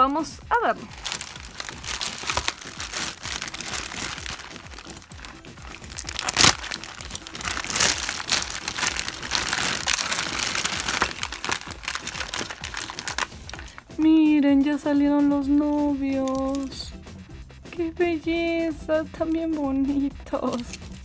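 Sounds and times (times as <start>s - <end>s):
plastic bags crinkling: 0.8s - 13.9s, 16.1s - 16.8s.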